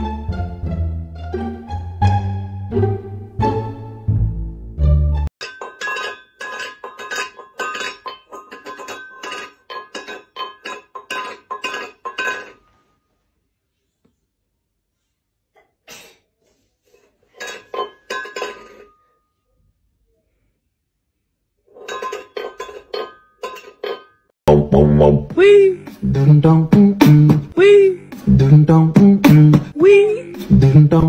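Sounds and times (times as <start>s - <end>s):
metallic clinking and jingling: 5.4s - 12.8s, 17.3s - 19.2s, 21.7s - 24.3s.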